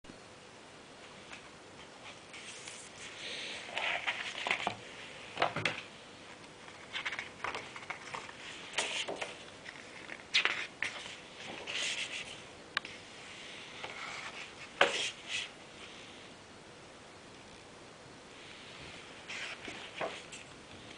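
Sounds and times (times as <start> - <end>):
book pages rustling: 1.2 - 12.4, 19.2 - 20.9.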